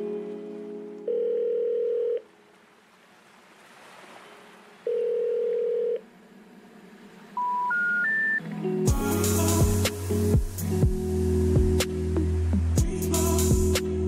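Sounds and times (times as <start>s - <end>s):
telephone ringback tone: 1.0s - 2.3s, 4.9s - 6.0s, 7.4s - 8.4s
short rising beeps: 7.4s - 8.4s.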